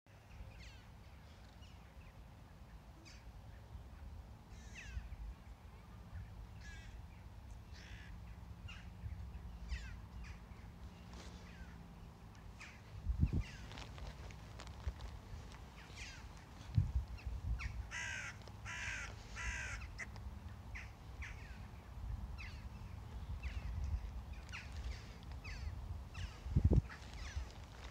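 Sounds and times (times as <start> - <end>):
crows cawing: 6.6 - 7.0, 7.7 - 8.8, 17.6 - 20.2, 20.8 - 21.6.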